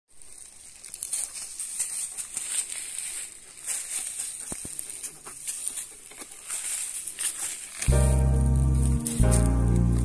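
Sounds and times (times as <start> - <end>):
steady high hiss: 7.9 - 10.0.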